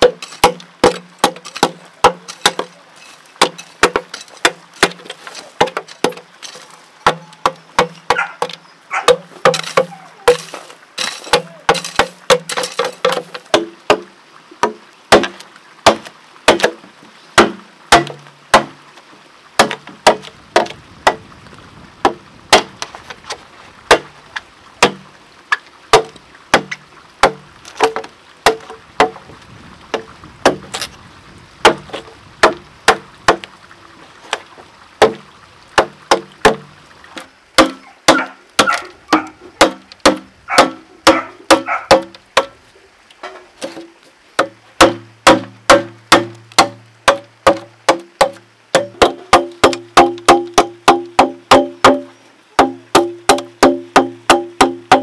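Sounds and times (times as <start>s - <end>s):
machete chopping bamboo: 0.0s - 2.7s, 3.4s - 16.8s, 17.4s - 18.8s, 19.6s - 21.2s, 22.0s - 22.8s, 23.9s - 24.1s, 24.8s - 25.0s, 25.9s - 29.2s, 30.4s - 30.9s, 31.6s - 33.5s, 35.0s - 35.2s, 35.8s - 42.6s, 44.4s - 55.0s.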